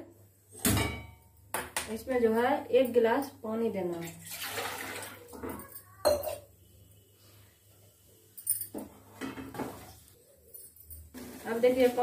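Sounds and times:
water pouring into metal pan: 4.0 - 5.4.

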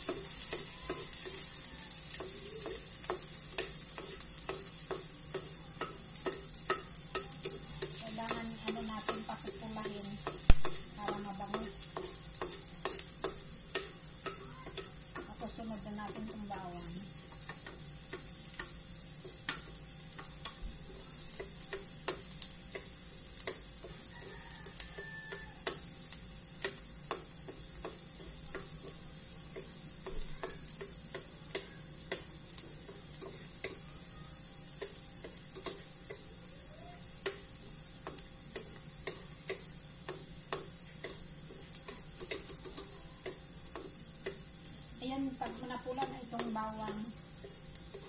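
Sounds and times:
spatula knocking against wok: 0.0 - 16.8
onion and garlic sizzling in oil: 0.0 - 48.0.

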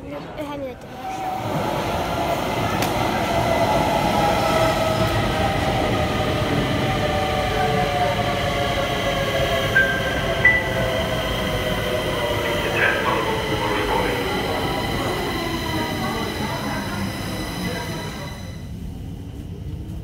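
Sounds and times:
train whine: 0.8 - 19.5.

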